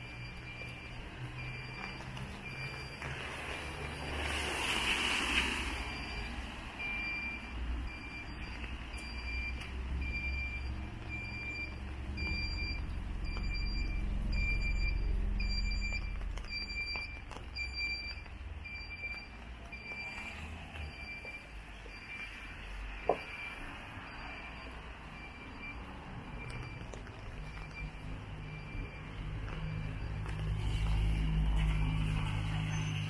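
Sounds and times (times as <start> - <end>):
electronic warning beeps: 0.0 - 33.0
low traffic rumble: 0.0 - 33.0.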